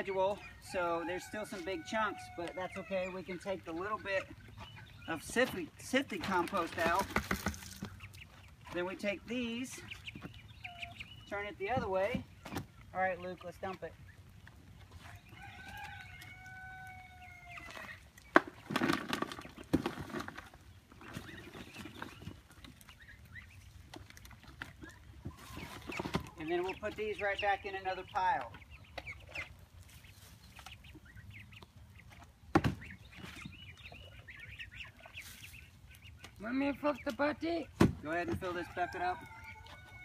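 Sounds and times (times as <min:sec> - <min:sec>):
chickens clucking and chirping: 0:00.0 - 0:40.0
rooster crowing: 0:00.7 - 0:03.0, 0:15.3 - 0:17.8, 0:38.6 - 0:40.0.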